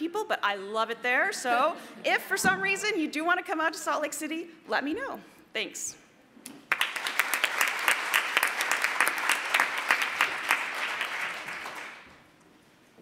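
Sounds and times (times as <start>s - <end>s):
audience applauding: 6.6s - 12.2s.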